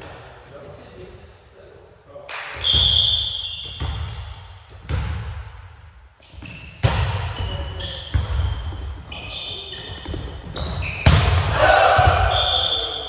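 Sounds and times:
sneakers squeaking on gym floor: 0:00.8 - 0:01.5, 0:02.6 - 0:13.0
referee's whistle: 0:02.6 - 0:03.9, 0:11.8 - 0:13.0
volleyball being hit: 0:11.0 - 0:12.4.

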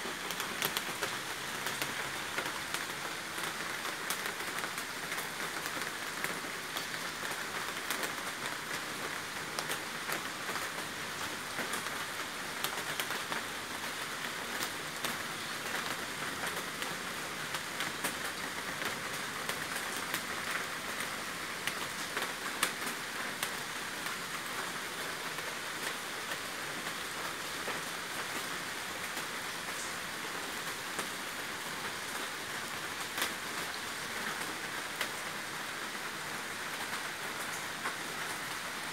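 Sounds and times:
steady rain hiss: 0:00.0 - 0:38.9
raindrop ticks: 0:00.2 - 0:02.9.

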